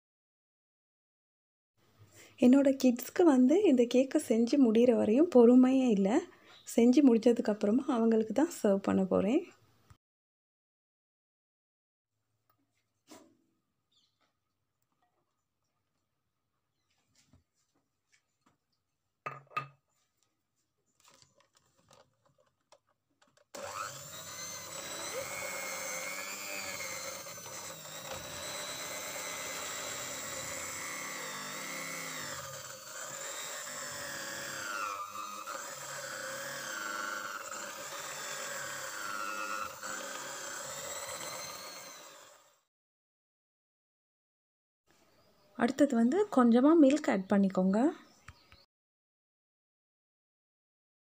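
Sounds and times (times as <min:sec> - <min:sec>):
electric hand mixer whirring: 0:23.3 - 0:42.7.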